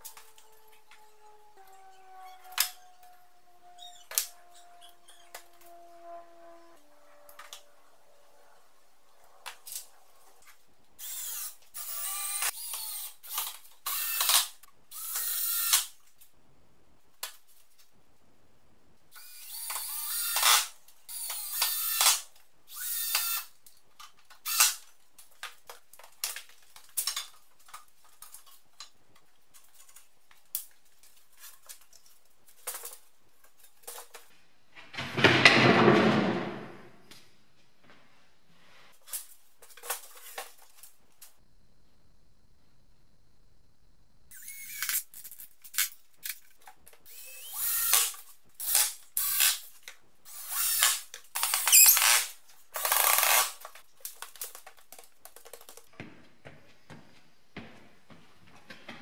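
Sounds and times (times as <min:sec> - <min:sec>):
drill driving screws into wood: 0:11.0 - 0:16.0, 0:19.2 - 0:23.6, 0:24.4 - 0:24.8, 0:44.3 - 0:45.1, 0:47.1 - 0:49.7, 0:50.3 - 0:53.8.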